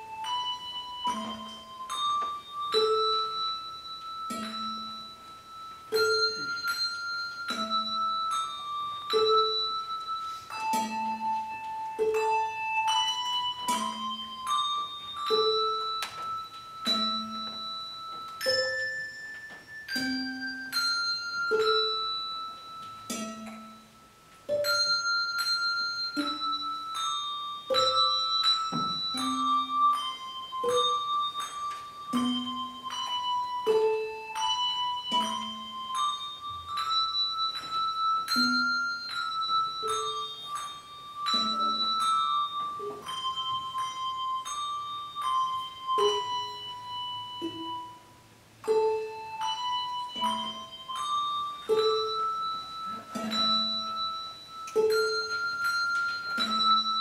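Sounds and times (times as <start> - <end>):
handbell melody: 0.0 - 57.0.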